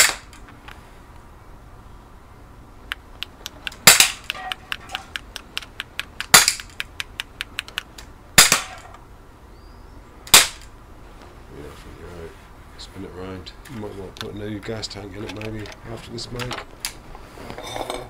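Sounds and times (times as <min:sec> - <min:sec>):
air pistol shots: 0:00.0 - 0:00.4, 0:03.6 - 0:05.2, 0:06.1 - 0:07.8, 0:08.4 - 0:08.9, 0:10.3 - 0:10.7.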